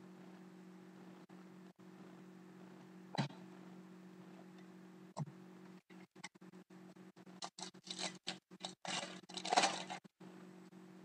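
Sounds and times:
foil pack tearing and crinkling: 7.4s - 10.0s.

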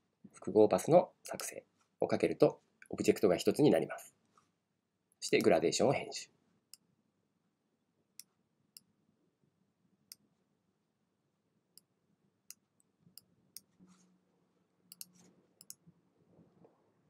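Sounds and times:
computer mouse clicks: 14.9s - 15.8s.

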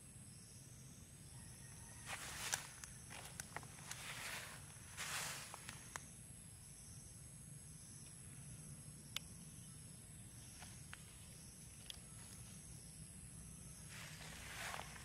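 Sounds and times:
high-pitched insect drone: 0.0s - 15.0s
small sharp ticks: 2.1s - 4.4s, 5.0s - 6.1s, 9.0s - 9.4s, 10.4s - 12.8s.

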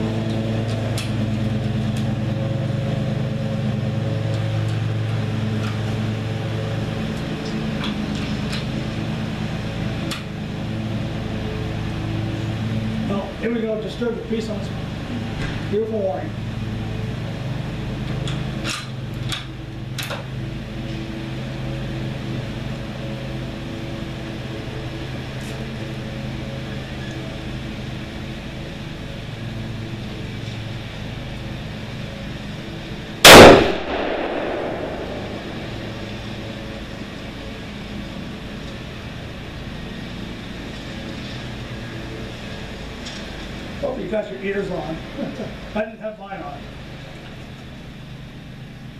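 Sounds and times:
low hum: 32.0s - 39.2s
loud rifle shot: 33.2s - 36.2s.

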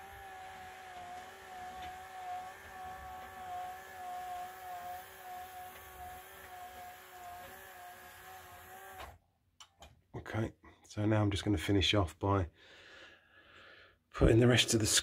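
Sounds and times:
roller blind motor whining: 0.0s - 9.2s.

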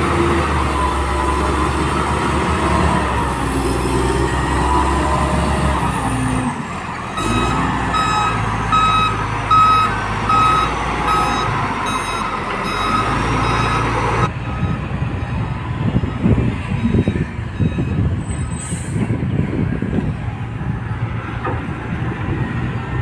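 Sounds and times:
loader diesel engine running: 0.0s - 23.0s
reversing alarm beeping: 7.2s - 14.9s, 16.2s - 18.5s.

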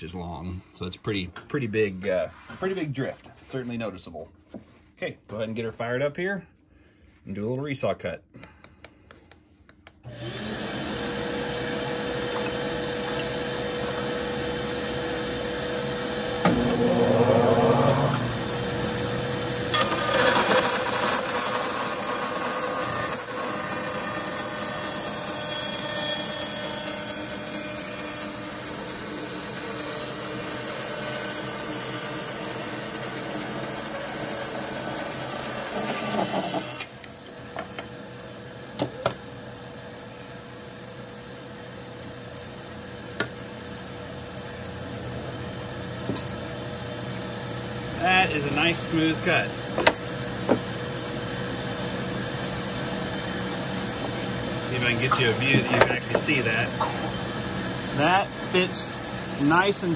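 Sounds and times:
bandsaw cutting wood: 10.1s - 37.1s, 47.8s - 59.9s.

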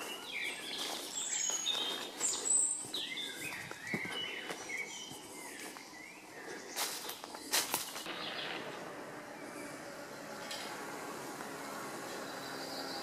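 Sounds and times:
footsteps on dirt path: 0.0s - 8.8s
songbirds chirping and singing: 0.0s - 13.0s.

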